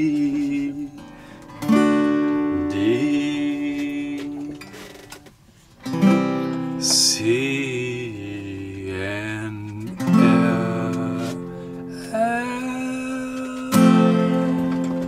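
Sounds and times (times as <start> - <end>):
person singing: 0.0 - 1.0, 2.4 - 4.7, 6.8 - 15.0
acoustic guitar strummed: 0.0 - 15.0.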